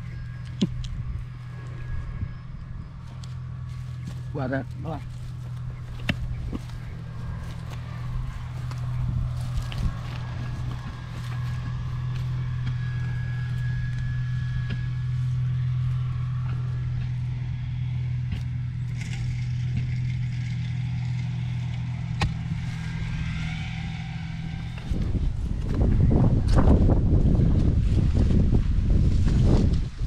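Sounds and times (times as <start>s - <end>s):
small engine humming: 0.0s - 30.0s.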